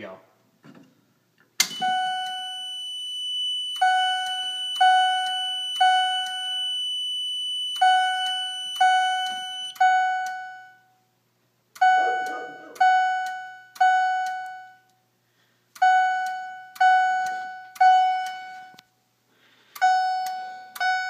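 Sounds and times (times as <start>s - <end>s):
steady high-pitched beep: 1.6s - 10.9s, 11.8s - 14.9s, 15.8s - 18.8s, 19.8s - 21.0s
fire alarm chime strokes: 1.6s - 11.0s, 11.8s - 14.9s, 15.8s - 18.8s, 19.8s - 21.0s.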